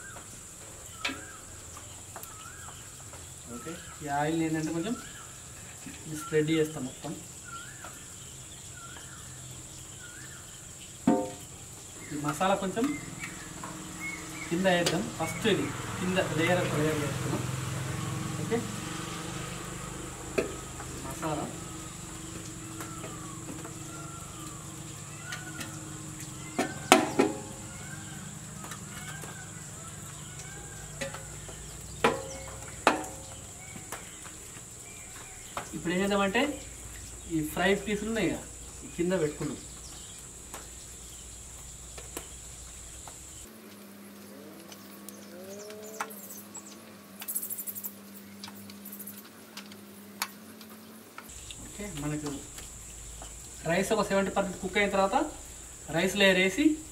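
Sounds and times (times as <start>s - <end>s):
faint rising bird calls: 0.0s - 35.9s, 43.0s - 51.5s
high insect drone: 0.0s - 56.9s.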